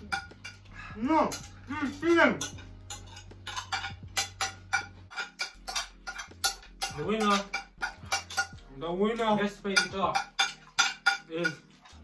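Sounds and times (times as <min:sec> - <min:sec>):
background music with bass: 0:00.0 - 0:12.0
spoons scraping plates: 0:00.0 - 0:12.0.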